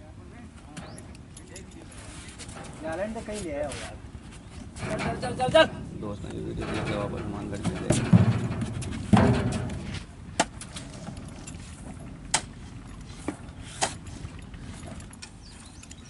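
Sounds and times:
horses thumping on truck bed: 0:02.4 - 0:15.7
tailgate clanking: 0:04.2 - 0:15.5.

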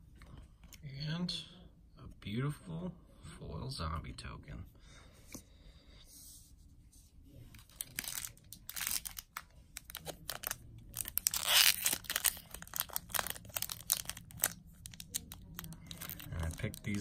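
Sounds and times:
foil wrapper crinkling and tearing: 0:07.6 - 0:17.0.

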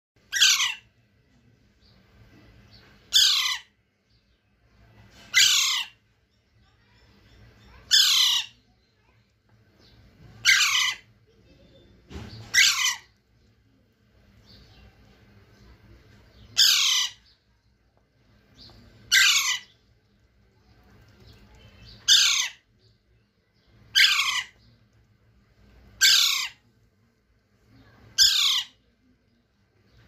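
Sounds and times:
parakeet chick squawking: 0:00.3 - 0:00.9, 0:03.1 - 0:03.8, 0:05.3 - 0:06.0, 0:07.7 - 0:08.7, 0:10.3 - 0:11.1, 0:12.4 - 0:13.2, 0:16.5 - 0:17.4, 0:19.0 - 0:19.8, 0:21.6 - 0:22.7, 0:23.9 - 0:24.7, 0:25.9 - 0:26.6, 0:28.1 - 0:28.9.

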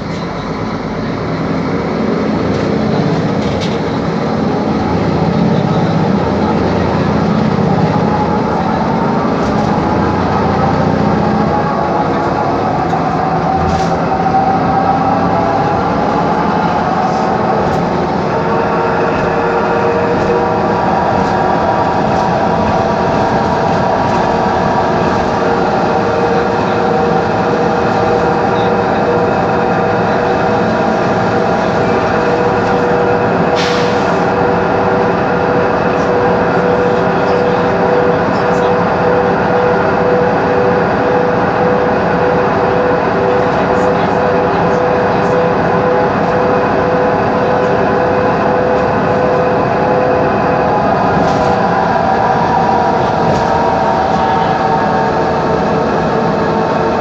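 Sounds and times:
bus differential whine: 0:00.0 - 0:57.0
road and engine noise: 0:00.0 - 0:57.0.

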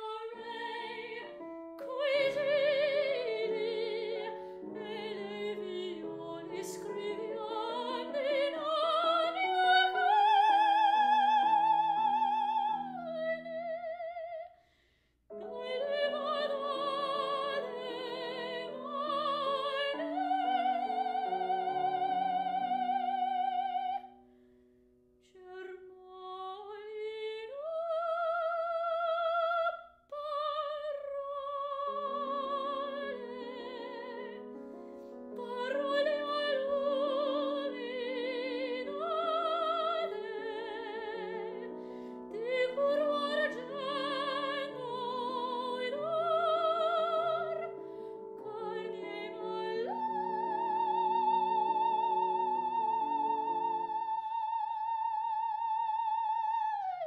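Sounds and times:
piano accompaniment: 0:00.0 - 0:13.8, 0:15.3 - 0:24.0, 0:30.6 - 0:56.9
operatic soprano singing: 0:00.0 - 0:14.6, 0:15.3 - 0:24.1, 0:25.3 - 0:34.6, 0:35.3 - 0:57.0.

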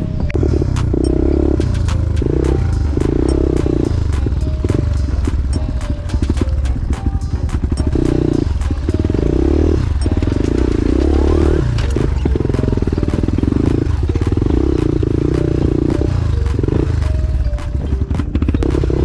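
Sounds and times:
motorbike engine surging: 0:00.0 - 0:19.0
stones clattering under wheels: 0:04.7 - 0:15.2.

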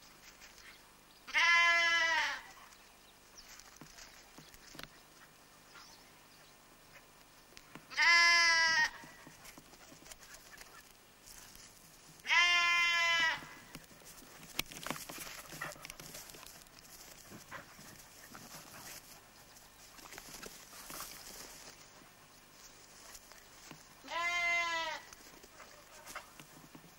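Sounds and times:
lamb bleating: 0:01.3 - 0:02.5, 0:07.9 - 0:09.2, 0:12.2 - 0:13.7, 0:24.0 - 0:25.1.

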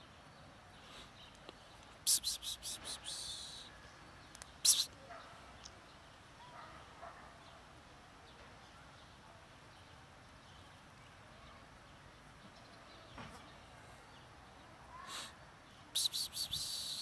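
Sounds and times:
faint outdoor background: 0:00.0 - 0:17.0
person hissing psst: 0:02.0 - 0:03.7, 0:04.6 - 0:04.9, 0:16.0 - 0:17.0.

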